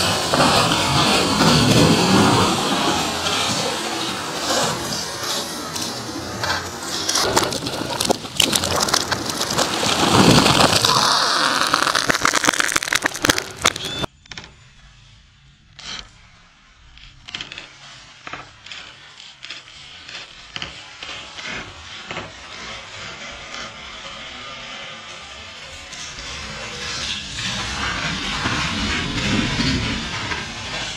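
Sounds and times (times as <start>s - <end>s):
wood cracking and splintering: 4.4s - 14.1s
tree trunk crashing to ground: 6.9s - 14.1s.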